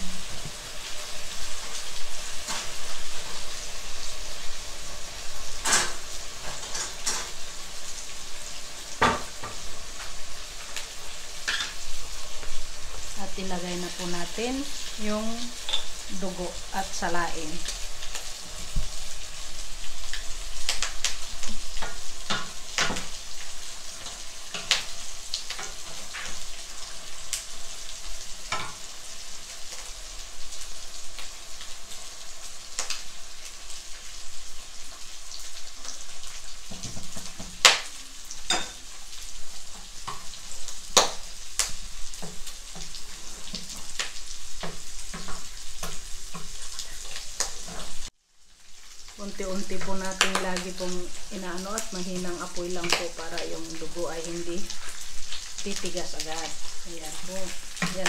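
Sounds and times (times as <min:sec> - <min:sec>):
meat sizzling in a pot: 0:00.0 - 0:58.0.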